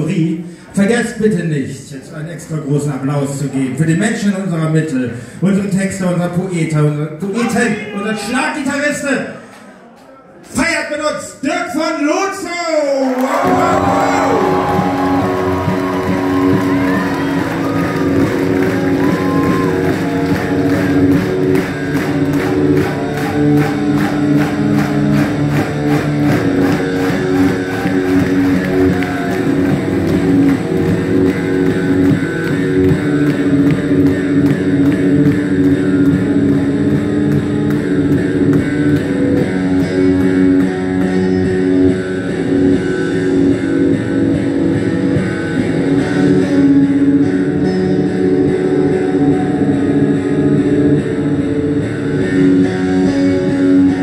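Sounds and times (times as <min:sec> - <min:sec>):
bass guitar: 0:13.3 - 0:54.0
electric guitars ringing: 0:13.4 - 0:54.0
drums keeping a steady beat: 0:13.5 - 0:39.8.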